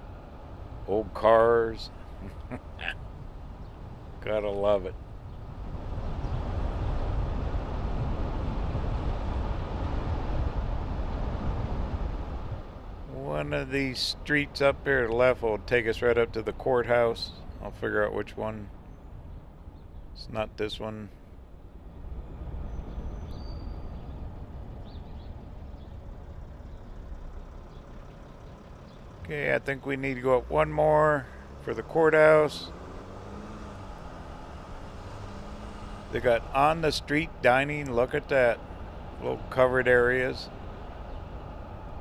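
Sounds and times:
vehicle road and wind noise: 0.0s - 42.0s.

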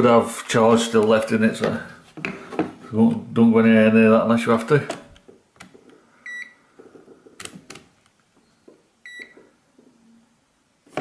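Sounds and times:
multimeter high beeps: 6.2s - 6.6s, 8.4s - 9.4s.

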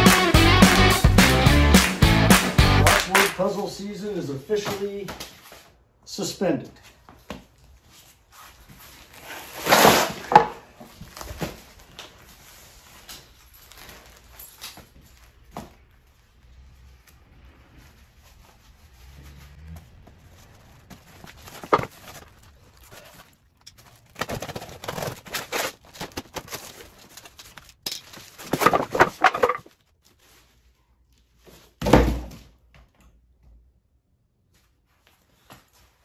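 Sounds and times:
cardboard ripping: 9.0s - 10.4s, 20.4s - 29.5s.

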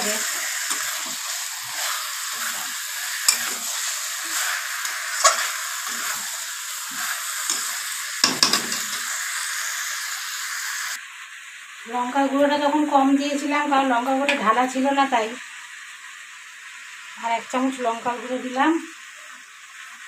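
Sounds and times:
metal spatula scraping a pan: 0.0s - 9.3s
food sizzling in a metal pan: 0.0s - 20.0s.

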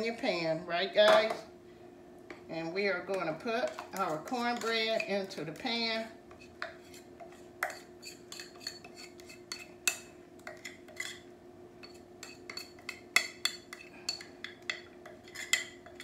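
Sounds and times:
fork scraping glass bowl: 6.4s - 9.8s, 10.6s - 11.2s, 11.8s - 13.0s, 15.2s - 16.0s.

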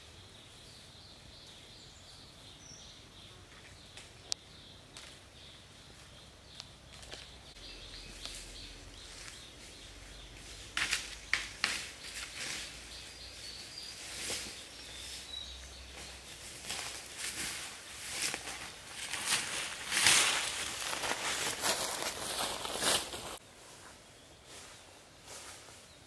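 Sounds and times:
footsteps crunching through dry leaves: 6.9s - 23.4s
sharp crackles: 16.6s - 23.4s.

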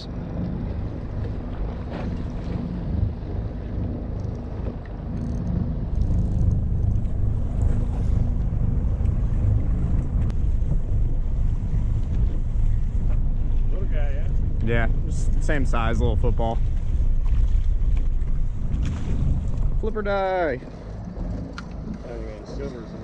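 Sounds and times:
boat engine low hum: 0.0s - 23.0s
wind buffeting microphone: 0.0s - 23.0s.

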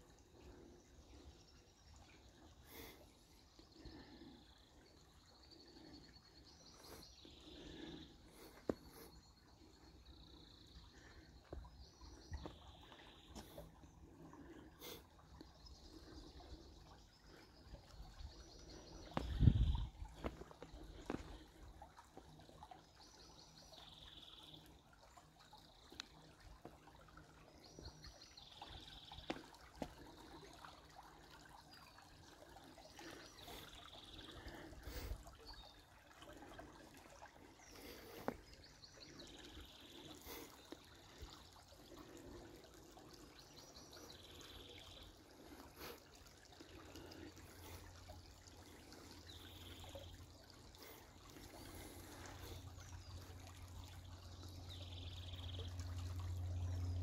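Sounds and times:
creek trickling: 0.0s - 57.0s
songbird singing: 3.7s - 13.8s, 15.4s - 21.7s, 49.1s - 57.0s.

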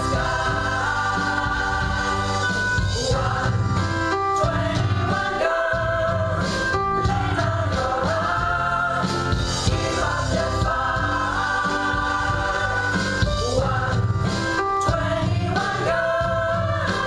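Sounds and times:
guitar: 0.0s - 17.0s
piano: 0.0s - 17.0s
women's gospel choir singing: 0.0s - 17.0s.

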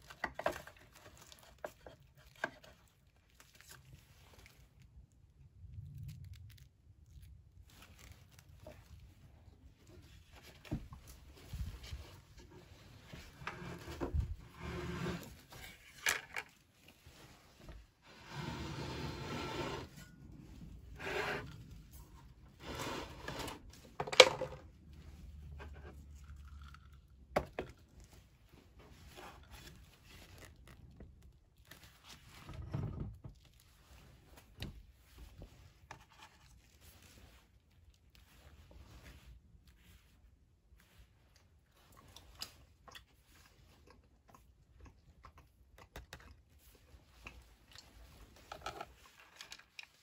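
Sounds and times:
gloved hands rubbing and scraping: 16.6s - 24.0s.

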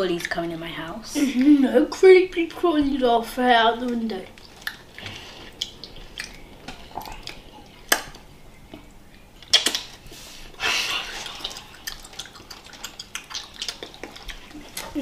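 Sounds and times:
child eating with wet mouth sounds: 3.8s - 15.0s
sharp mouth clicks: 9.4s - 10.0s.

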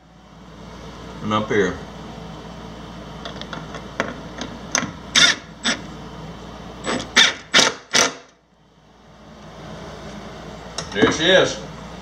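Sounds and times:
impact driver driving a screw: 5.2s - 5.8s, 6.8s - 8.3s.

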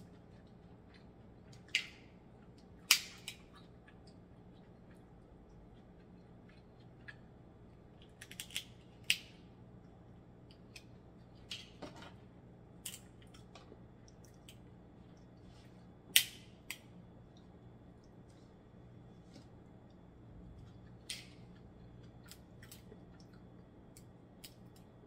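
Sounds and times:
crab shells cracking: 2.8s - 3.6s, 8.0s - 9.4s, 12.8s - 14.6s, 21.0s - 24.9s.

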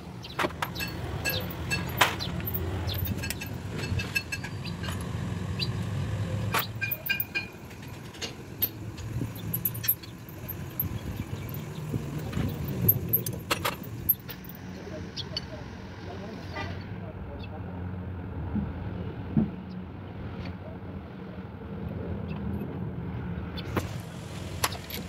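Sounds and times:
low vehicle rumble: 0.0s - 25.0s
metal engine parts clinking: 0.2s - 5.2s, 6.5s - 14.6s, 23.7s - 25.0s.

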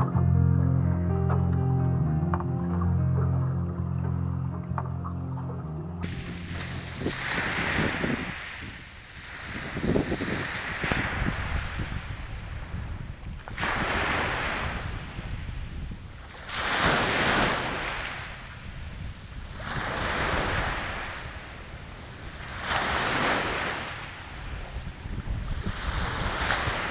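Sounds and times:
small waves breaking: 6.0s - 26.9s
wind rumble on microphone: 6.0s - 26.9s.

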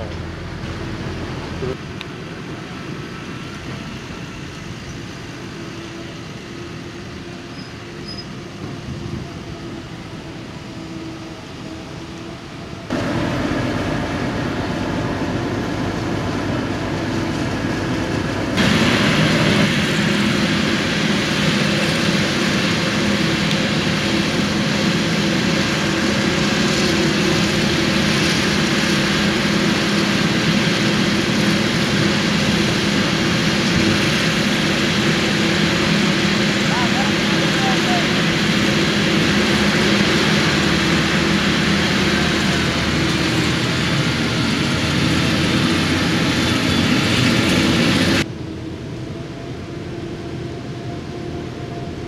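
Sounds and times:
tractor engine running: 12.9s - 48.3s.

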